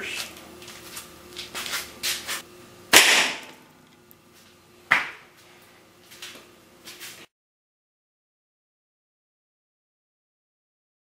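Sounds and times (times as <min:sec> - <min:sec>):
arrow shot and impact whack: 0:02.9 - 0:03.6
sharp knock: 0:03.0 - 0:03.5.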